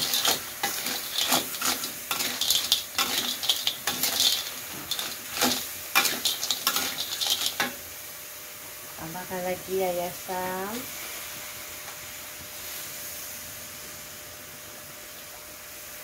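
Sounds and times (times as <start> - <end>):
metal spatula scraping a wok: 0.0 - 7.8
frying sizzle: 0.0 - 16.0.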